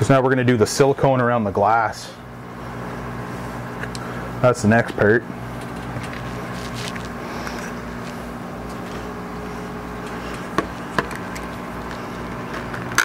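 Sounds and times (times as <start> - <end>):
low hum of room equipment: 0.0 - 13.0.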